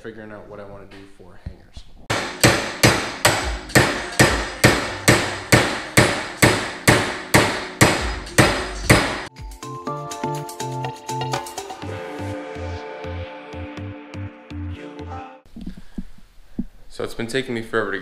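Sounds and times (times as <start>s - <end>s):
hammer blows on metal bar: 2.1s - 9.3s
electronic music: 8.0s - 15.4s.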